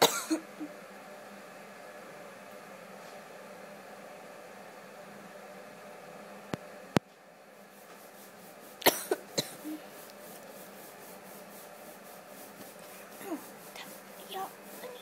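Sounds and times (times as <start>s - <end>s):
person coughing: 0.0s - 0.6s, 8.8s - 9.8s.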